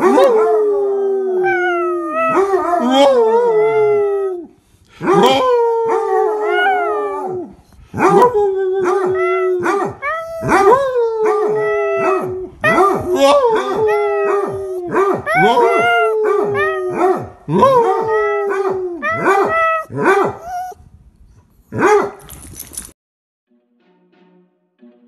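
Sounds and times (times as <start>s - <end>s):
small dog howling and yipping: 8.0s - 20.8s.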